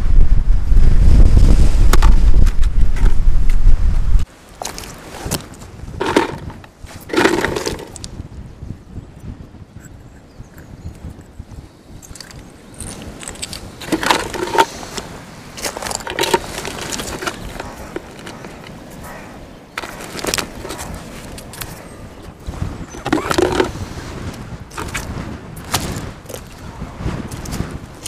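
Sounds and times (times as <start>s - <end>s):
pebbles crunching and clattering: 6.0s - 8.1s, 12.0s - 15.0s, 15.6s - 18.8s, 19.8s - 21.7s, 23.0s - 23.8s.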